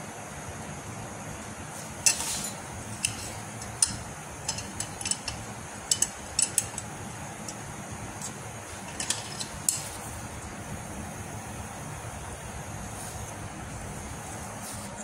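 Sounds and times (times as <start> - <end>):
low background hum: 0.0 - 15.0
metallic clicks and clinks: 2.0 - 7.6, 8.2 - 9.9.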